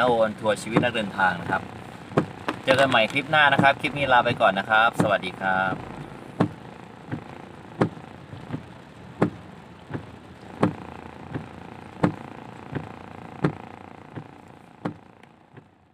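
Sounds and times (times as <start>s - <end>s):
rain hiss: 0.0s - 15.9s
traffic: 0.0s - 15.9s
windscreen wipers knocking: 0.0s - 15.9s.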